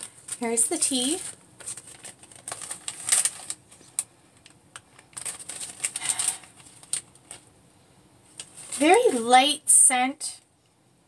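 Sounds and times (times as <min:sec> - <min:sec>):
plastic bag crinkling: 0:00.0 - 0:07.5, 0:08.3 - 0:09.4.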